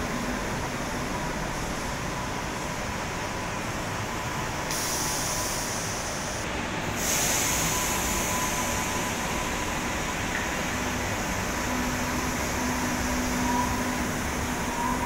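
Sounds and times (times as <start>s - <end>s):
train pneumatic air hiss: 4.7s - 9.8s.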